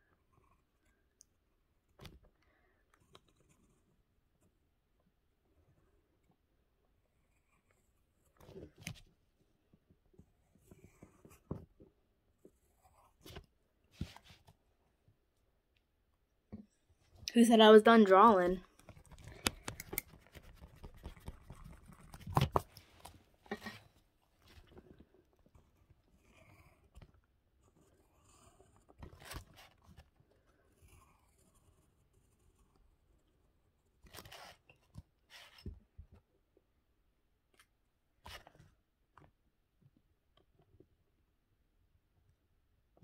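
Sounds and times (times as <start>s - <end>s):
pencil scratching on paper: 10.3s - 11.6s, 19.7s - 22.4s, 25.5s - 35.7s.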